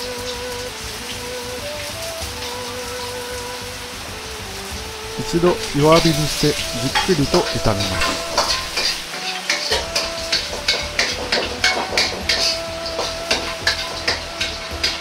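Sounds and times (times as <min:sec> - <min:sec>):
oil sizzling: 0:00.0 - 0:15.0
metal ladle scraping wok: 0:05.2 - 0:15.0.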